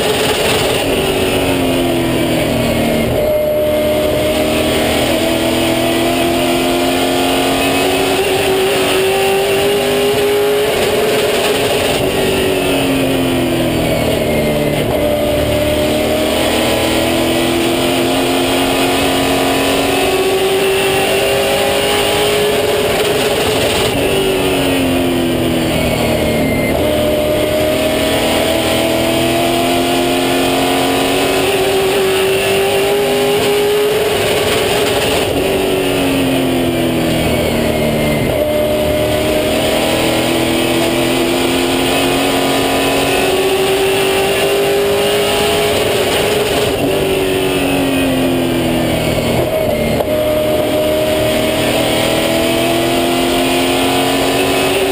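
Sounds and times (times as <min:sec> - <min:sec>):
race car engine revving: 0:00.0 - 0:54.9.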